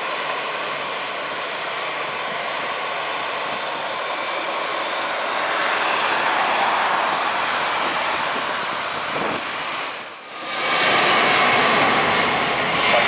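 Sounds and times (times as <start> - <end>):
jet engines roaring: 0.0 - 13.0.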